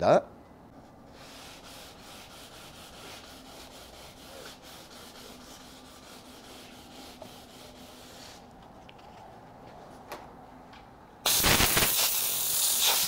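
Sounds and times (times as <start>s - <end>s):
sanding block rubbing wood: 1.2s - 8.4s.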